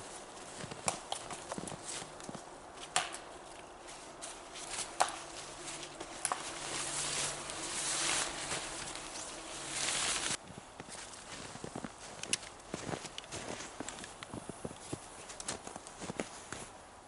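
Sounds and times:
tarp rustling and crinkling: 3.3 - 16.7.

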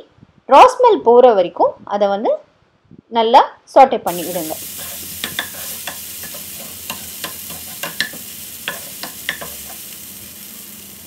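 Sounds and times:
food sizzling in a frying pan: 4.1 - 11.0
wooden spatula tapping a pan: 5.2 - 9.8.

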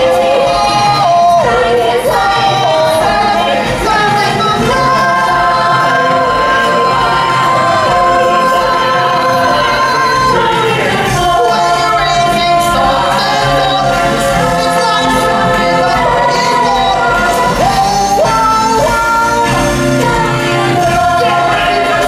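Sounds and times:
instrumental music: 0.0 - 22.0
voices singing: 0.0 - 22.0.

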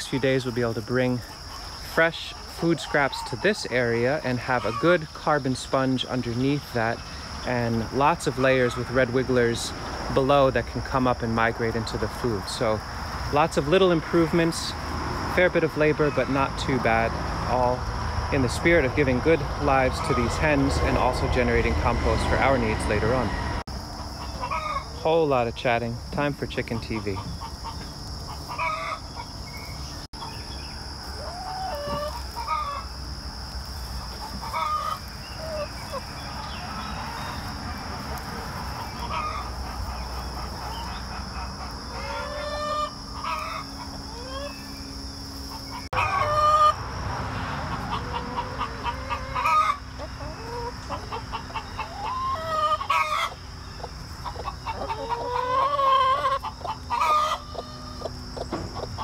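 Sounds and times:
hens clucking: 0.0 - 59.0.

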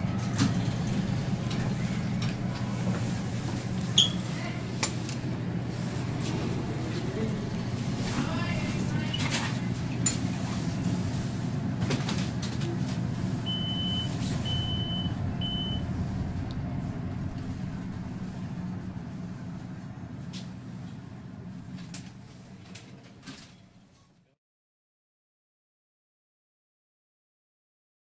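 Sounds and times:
elevator ride rumble: 0.0 - 23.9
short high beeps: 13.5 - 15.8.

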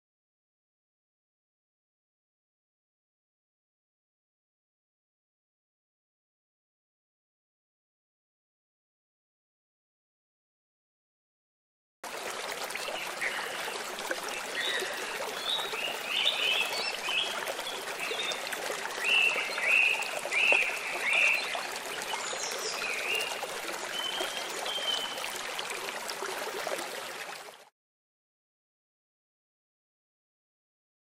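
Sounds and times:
stream flowing over stones: 12.0 - 27.7.

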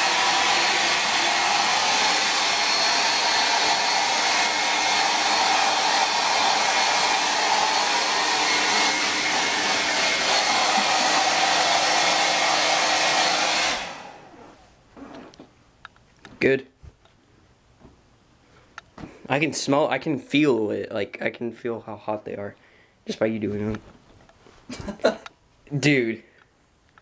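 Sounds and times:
hair dryer blowing: 0.0 - 14.5.

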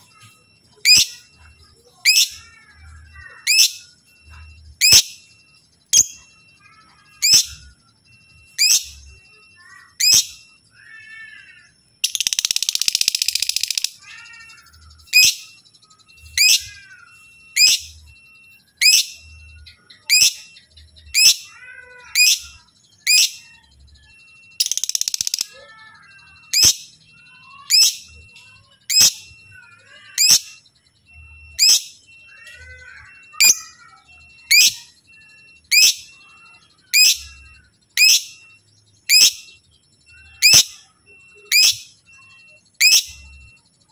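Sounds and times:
lovebird chattering trill: 0.0 - 5.2, 5.8 - 18.1, 18.8 - 43.5
lovebird chirping: 0.0 - 43.9
lovebird warbling chatter: 8.5 - 15.5, 18.8 - 43.4.

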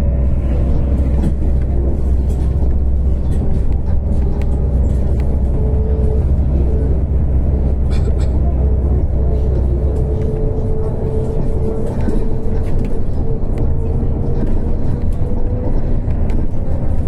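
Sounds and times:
vehicle rumble from inside: 0.0 - 17.0.

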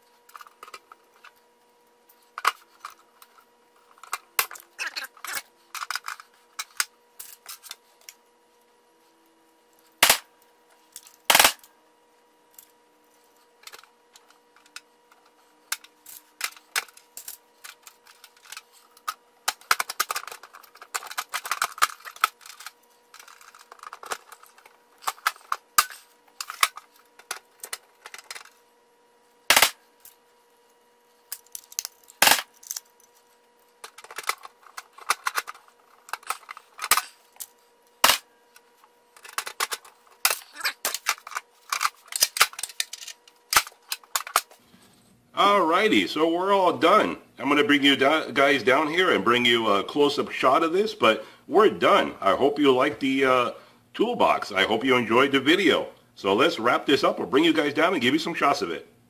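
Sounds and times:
loud sharp cracks: 10.0 - 10.3.

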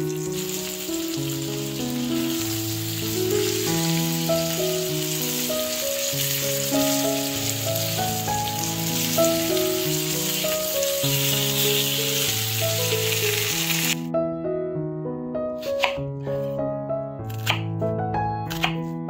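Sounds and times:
chicken sizzling in frying pan: 0.0 - 14.0
slow melodic background music: 0.0 - 19.0.

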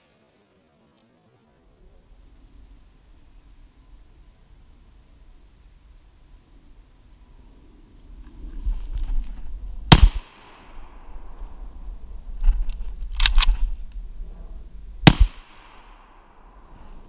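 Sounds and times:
rifle shots with echo: 9.9 - 11.4, 15.0 - 16.4.

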